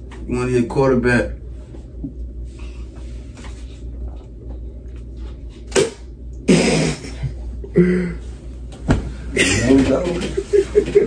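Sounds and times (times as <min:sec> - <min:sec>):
stifled laughter: 0:09.4 - 0:11.0.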